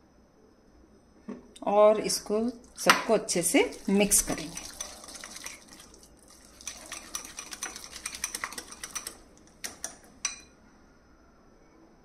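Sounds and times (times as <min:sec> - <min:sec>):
whisk beating in glass bowl: 0:02.8 - 0:10.5
whisk clicking against bowl: 0:02.8 - 0:10.5.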